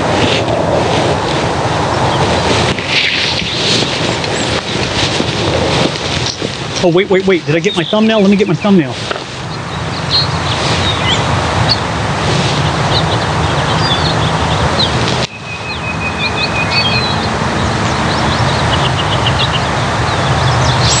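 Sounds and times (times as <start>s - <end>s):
steady rushing noise: 0.0s - 21.0s
small birds chirping: 6.0s - 21.0s.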